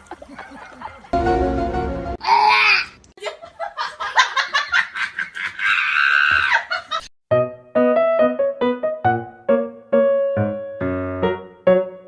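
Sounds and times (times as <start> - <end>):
piano music: 1.2 - 2.2, 7.3 - 12.0
loud high cry: 2.2 - 3.0, 5.4 - 6.8
person laughing: 3.2 - 7.1.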